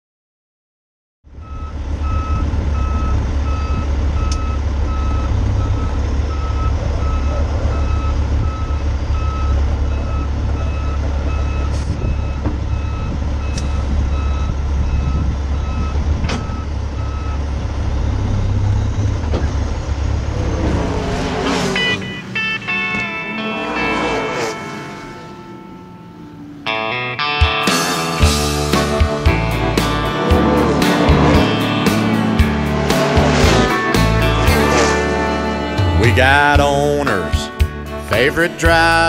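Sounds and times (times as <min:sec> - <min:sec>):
diesel truck engine rumbling: 0:01.2 - 0:39.0
reversing alarm beeping: 0:01.4 - 0:17.6, 0:21.7 - 0:26.6.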